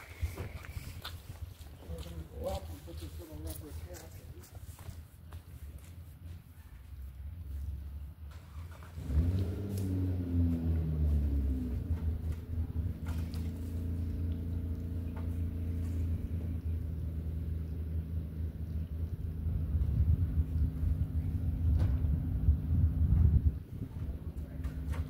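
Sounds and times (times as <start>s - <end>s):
engine running: 7.5s - 25.0s.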